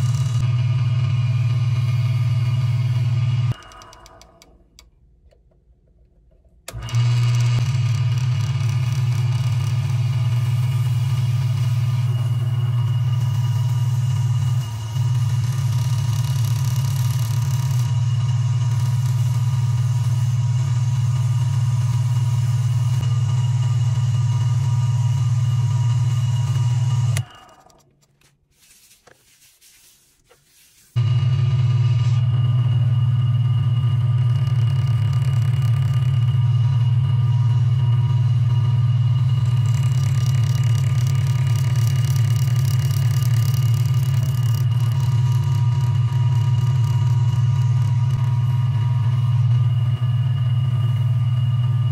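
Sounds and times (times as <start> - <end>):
lathe motor humming: 0.0 - 4.5, 6.7 - 27.8, 31.0 - 51.9
paper towel rubbing spinning wood: 8.0 - 23.0, 28.0 - 31.0, 39.4 - 49.4.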